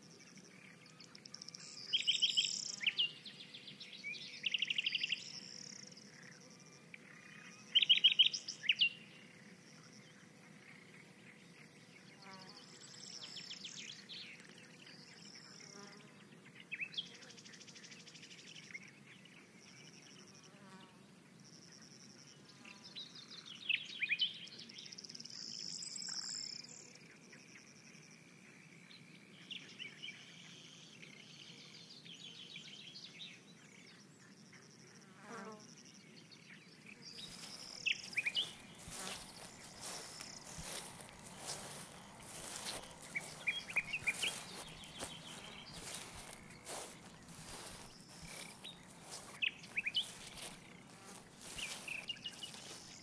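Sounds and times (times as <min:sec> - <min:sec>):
insects chirping in trills: 0:19.6 - 0:53.0
bird chirps: 0:37.0 - 0:53.0.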